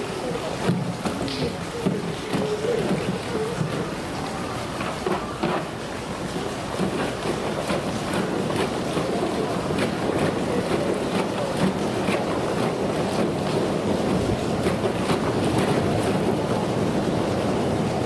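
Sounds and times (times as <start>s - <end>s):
pool water sloshing and splashing: 0.0s - 18.0s
steady rush of water: 0.0s - 18.0s.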